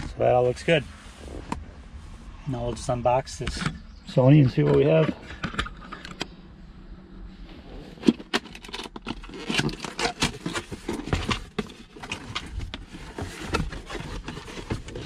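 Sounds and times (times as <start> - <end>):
cardboard flaps tapping and scraping: 9.0 - 15.0.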